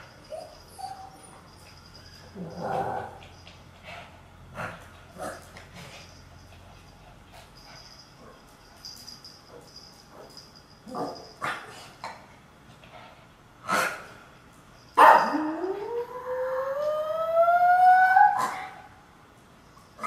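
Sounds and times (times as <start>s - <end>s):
dog howling: 15.2s - 18.7s.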